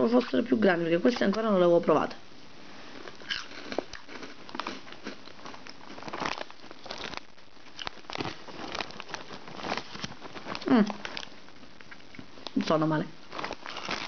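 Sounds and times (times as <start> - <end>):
plastic bag crinkling: 2.9 - 14.0.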